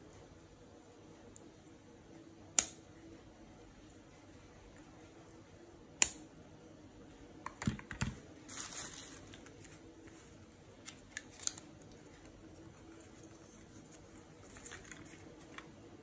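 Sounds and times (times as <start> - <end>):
papery rustle: 8.4 - 15.7.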